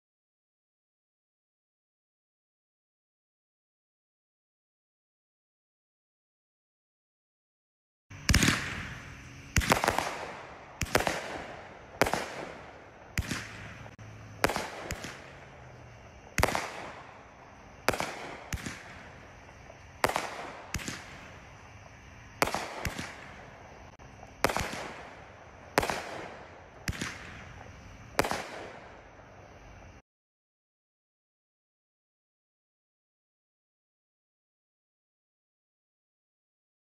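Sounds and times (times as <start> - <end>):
fireworks bangs with rumble: 8.2 - 29.0.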